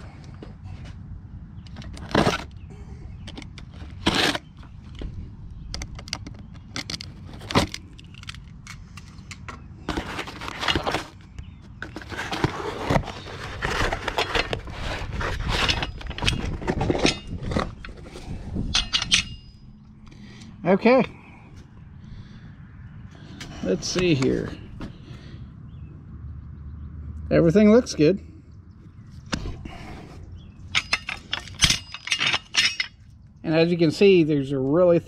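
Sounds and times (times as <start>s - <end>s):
cardboard crackling and tearing: 3.8s - 4.5s, 11.9s - 15.6s
box cutter slicing tape: 3.9s - 4.4s.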